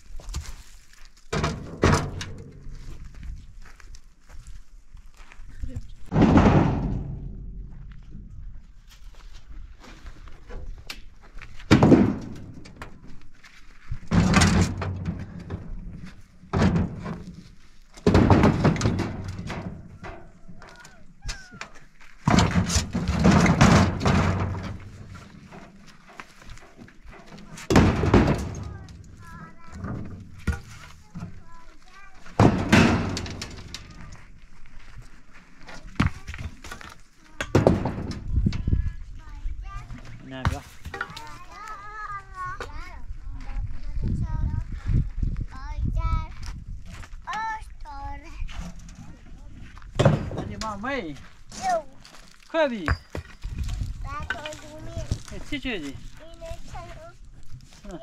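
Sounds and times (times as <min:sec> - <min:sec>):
rocks thudding on truck bed: 0:06.1 - 0:08.0, 0:11.6 - 0:13.0, 0:14.1 - 0:15.9, 0:16.5 - 0:17.4, 0:18.0 - 0:20.2, 0:22.2 - 0:25.7, 0:26.4 - 0:31.4, 0:32.3 - 0:34.0, 0:37.4 - 0:38.4, 0:49.9 - 0:50.8
stones knocking: 0:52.3 - 0:56.0.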